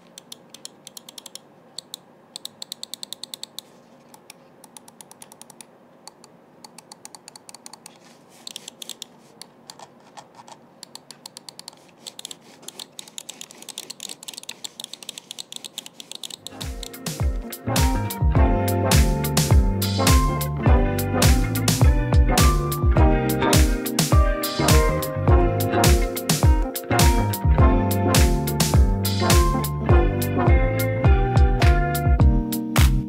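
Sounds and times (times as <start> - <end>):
mouse button and scroll clicks: 0.0 - 17.0
music: 16.5 - 33.0.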